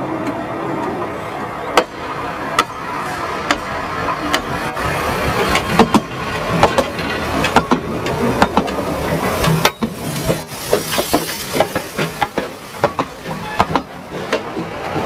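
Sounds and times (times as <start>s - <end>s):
train wheels rumbling on rails: 0.0s - 15.0s
sharp rail clicks and knocks: 3.4s - 4.6s, 5.4s - 15.0s.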